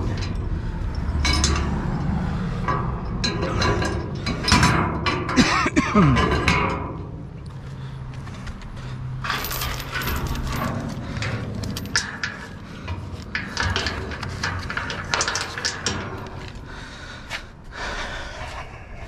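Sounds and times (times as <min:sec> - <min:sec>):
scrap clattering and knocking: 0:08.4 - 0:16.7.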